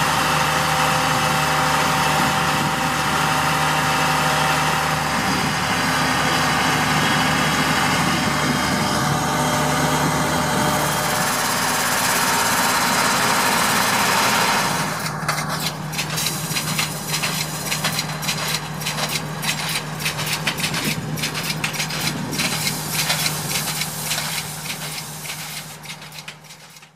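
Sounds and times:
harvester engine running: 0.0s - 26.9s
planter clicking and clattering: 10.9s - 26.9s.

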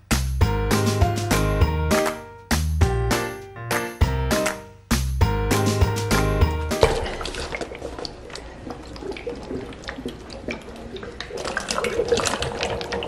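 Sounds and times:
water gurgling and splashing: 6.8s - 13.0s.

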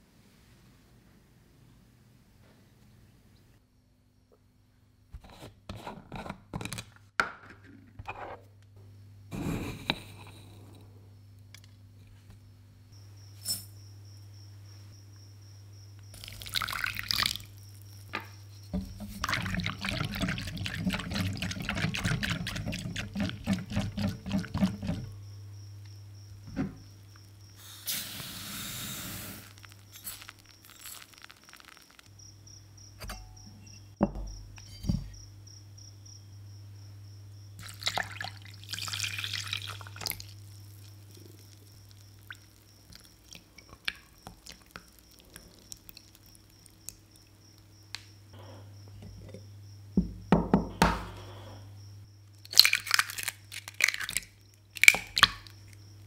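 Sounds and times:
milk pouring: 16.2s - 17.6s, 18.8s - 25.2s, 29.0s - 32.1s, 37.6s - 46.9s
eggs cracking: 16.2s - 25.2s, 29.4s - 32.1s, 37.6s - 47.7s, 52.4s - 55.8s
sugar pouring into bowl: 19.0s - 25.1s, 28.7s - 32.1s, 37.6s - 43.1s.

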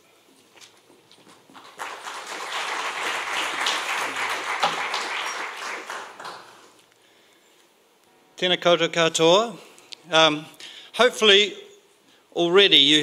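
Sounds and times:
audience applauding: 1.5s - 6.8s.

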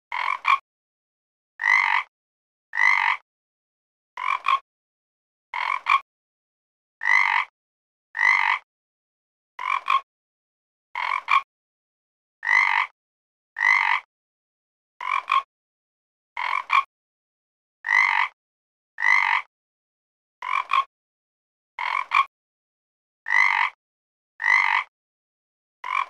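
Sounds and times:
frog croaking: 0.1s - 0.6s, 1.6s - 2.1s, 2.7s - 3.2s, 4.2s - 4.6s, 5.6s - 6.0s, 7.0s - 7.5s, 8.2s - 8.6s, 9.6s - 10.0s, 11.0s - 11.5s, 12.4s - 12.9s, 13.6s - 14.1s, 15.0s - 15.5s, 16.4s - 16.9s, 17.8s - 18.4s, 19.0s - 19.5s, 20.4s - 20.9s, 21.8s - 22.3s, 23.3s - 23.8s, 24.4s - 24.9s.

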